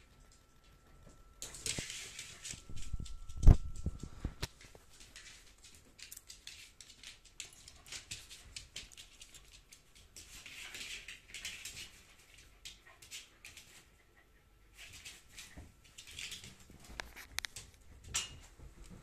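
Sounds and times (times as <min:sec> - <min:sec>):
soft rustling: 0:00.8 - 0:12.4
animal claws clicking on floor: 0:01.4 - 0:13.8, 0:14.8 - 0:19.0.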